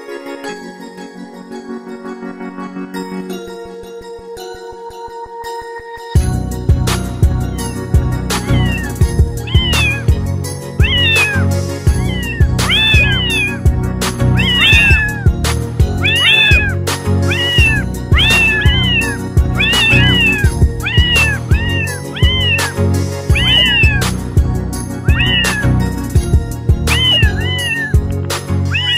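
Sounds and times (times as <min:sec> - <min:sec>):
background music with steady beat: 0:06.2 - 0:28.9
cat meowing: 0:08.3 - 0:10.2, 0:10.8 - 0:24.3, 0:24.9 - 0:28.9.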